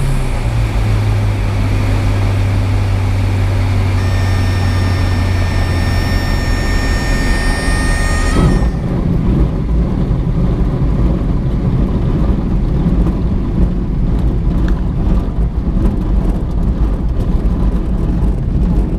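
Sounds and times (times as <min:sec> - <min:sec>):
aircraft engine and airflow: 0:00.0 - 0:18.9
high-pitched warning tone: 0:04.0 - 0:09.0.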